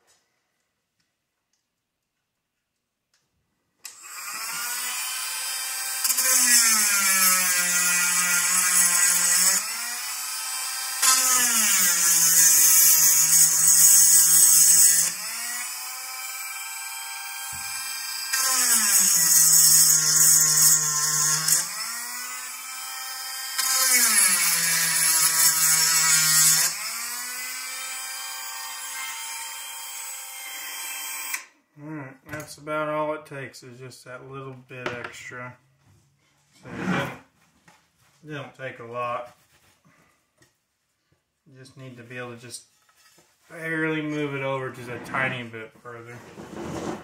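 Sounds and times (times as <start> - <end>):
rotary tool grinding: 3.9 - 30.6.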